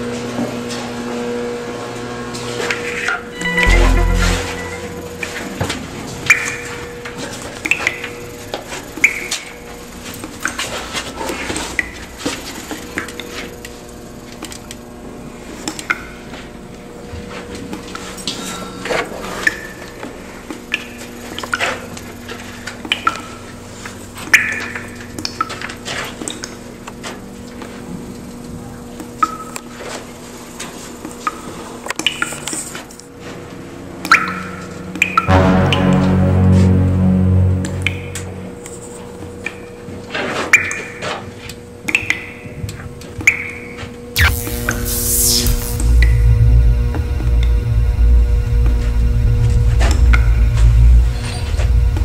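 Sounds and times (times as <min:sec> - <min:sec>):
low hum: 0:03.4 - 0:05.8, 0:35.3 - 0:39.3, 0:44.2 - 0:52.0.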